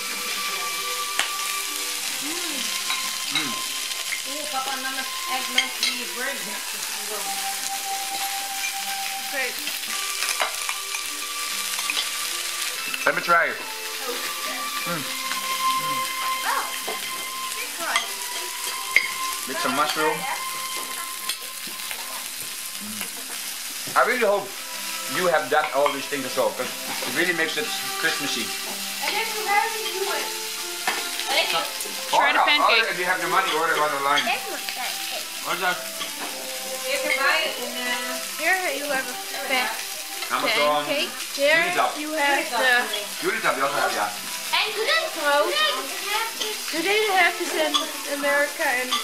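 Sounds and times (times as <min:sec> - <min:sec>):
food sizzling on grill: 0:00.0 - 0:49.0
cutlery clinking on a plate: 0:02.9 - 0:04.2, 0:30.8 - 0:31.1.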